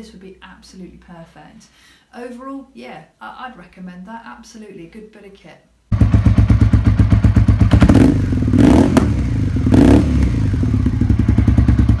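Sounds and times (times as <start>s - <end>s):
motorcycle engine revving: 5.9s - 12.0s.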